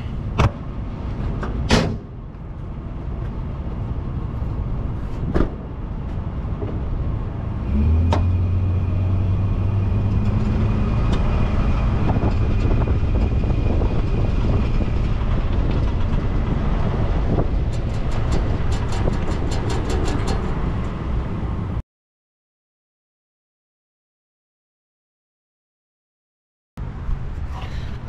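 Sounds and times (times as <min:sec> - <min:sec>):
truck engine: 0:00.0 - 0:21.8.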